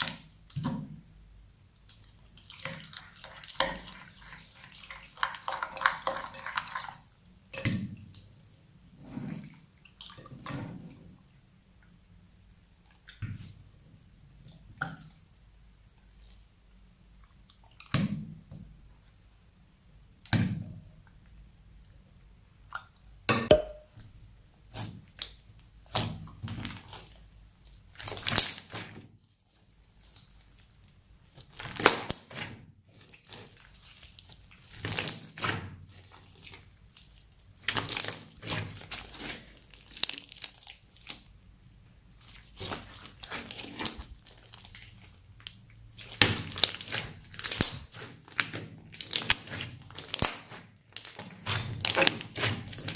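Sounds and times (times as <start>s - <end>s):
slime squelching and popping: 22.7s - 41.4s, 42.1s - 52.9s.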